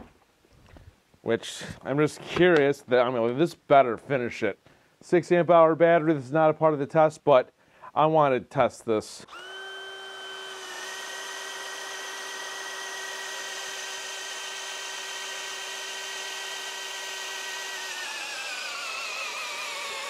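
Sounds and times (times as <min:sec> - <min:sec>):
drill motor whining and bogging: 0:09.2 - 0:20.0.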